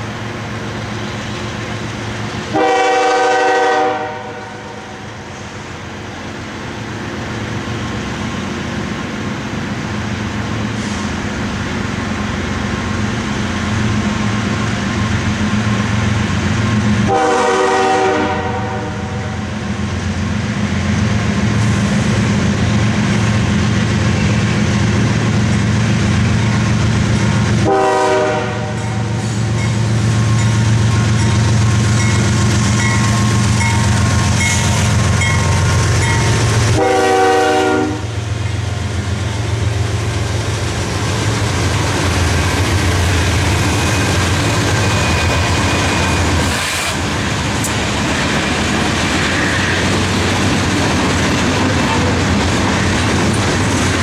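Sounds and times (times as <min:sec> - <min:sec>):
diesel locomotives passing: 0:00.0 - 0:54.0
locomotive horn blasts: 0:02.5 - 0:05.1, 0:17.0 - 0:19.4, 0:27.6 - 0:29.2, 0:36.0 - 0:38.2.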